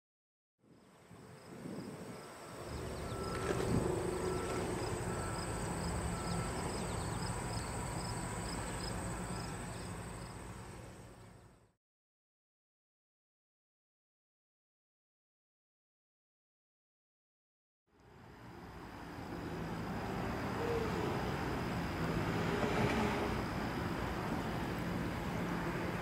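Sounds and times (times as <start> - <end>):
insects trilling and chirping: 0.7 - 10.7, 18.5 - 26.0.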